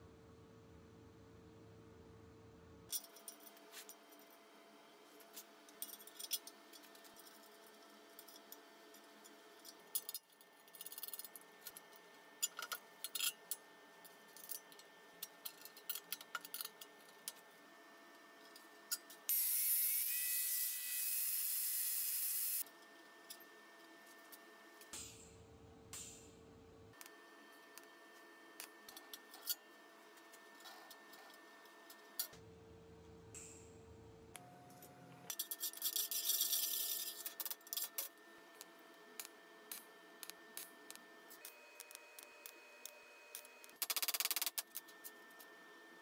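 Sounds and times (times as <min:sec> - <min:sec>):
metallic clicks and scrapes: 0:05.2 - 0:17.4, 0:35.3 - 0:38.1
small power tool running: 0:19.3 - 0:22.6.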